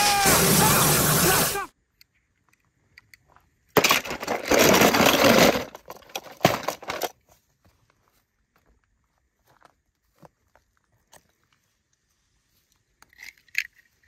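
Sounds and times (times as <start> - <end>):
toy cars rattling: 3.8 - 7.2.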